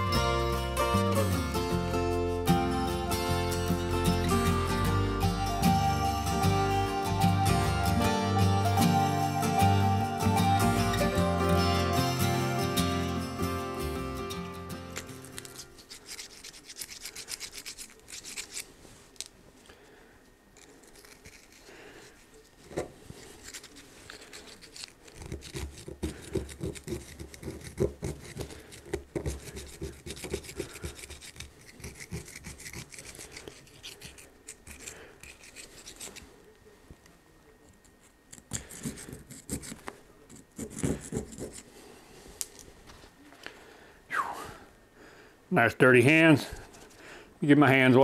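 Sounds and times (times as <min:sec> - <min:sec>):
screwdriver scraping rust in metal: 0:15.0 - 0:18.7, 0:23.2 - 0:36.2.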